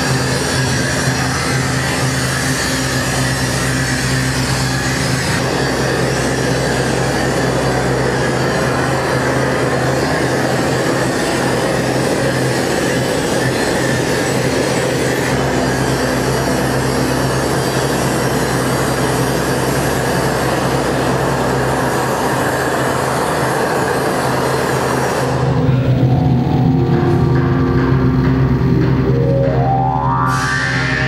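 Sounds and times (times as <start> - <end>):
loud steady rumbling: 0.0 - 31.0
low hum: 25.3 - 31.0
music with held tones: 25.7 - 31.0.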